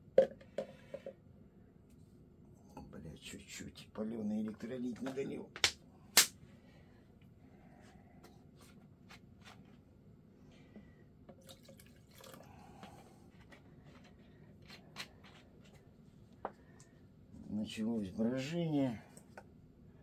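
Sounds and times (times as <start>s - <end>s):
liquid dripping: 11.3s - 12.5s.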